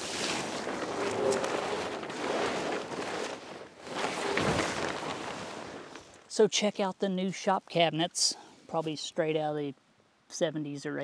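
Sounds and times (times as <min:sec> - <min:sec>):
plastic tarp rustling: 0:00.0 - 0:06.2.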